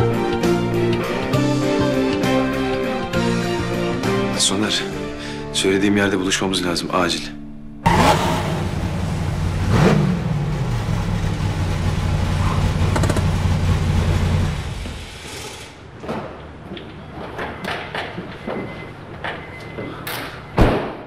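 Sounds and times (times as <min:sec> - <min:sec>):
sports car engine running: 0:07.8 - 0:15.2.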